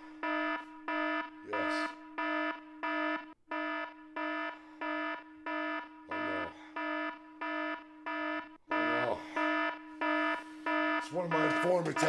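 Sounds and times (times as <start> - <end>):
electronic alarm siren beeping: 0.0 - 12.0.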